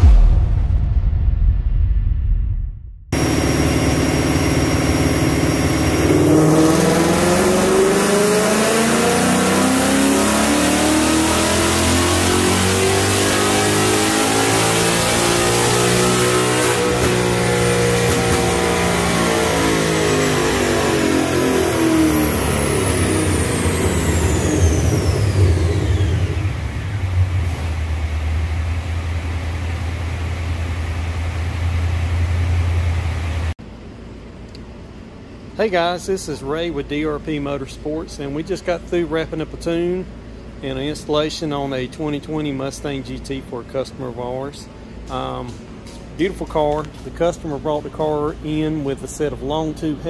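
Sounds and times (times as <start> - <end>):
high whine falling in pitch: 0.0 - 33.5
car engine revving on a dyno: 3.2 - 33.6.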